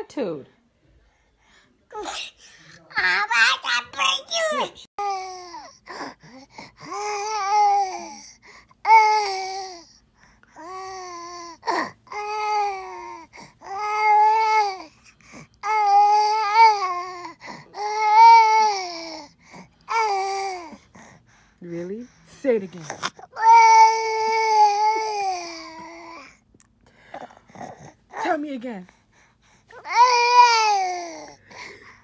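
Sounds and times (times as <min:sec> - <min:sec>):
infant breaths: 0:00.8 - 0:03.0, 0:05.2 - 0:32.0
infant babbling: 0:06.8 - 0:09.9, 0:23.1 - 0:26.3.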